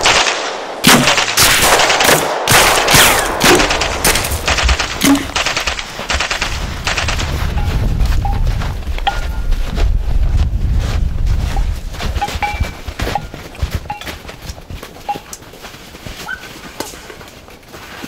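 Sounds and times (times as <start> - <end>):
rifle shots: 0.0 - 7.7
machine-gun bursts: 1.1 - 7.3.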